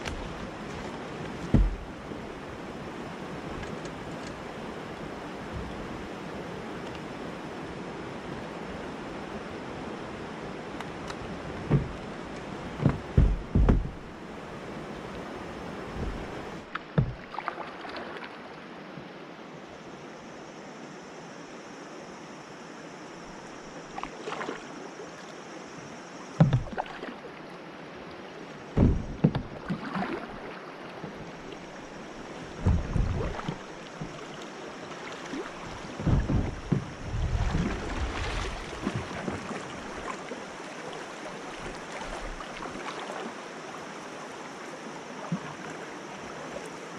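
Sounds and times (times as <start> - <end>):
low thumps and knocks: 0.0 - 2.0, 11.6 - 14.2, 15.9 - 17.3, 26.4 - 26.8, 28.7 - 29.6, 32.6 - 34.2, 35.9 - 39.4
river current rushing: 0.0 - 46.9.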